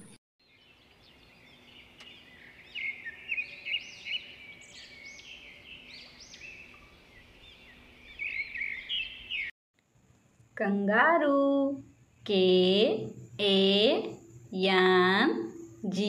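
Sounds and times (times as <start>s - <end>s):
birds chirping: 0.0s - 9.5s.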